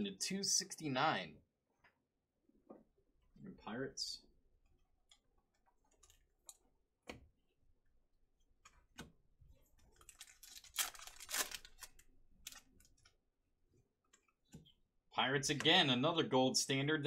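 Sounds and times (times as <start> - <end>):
card pack wrapper crinkling and tearing: 9.9 - 13.0.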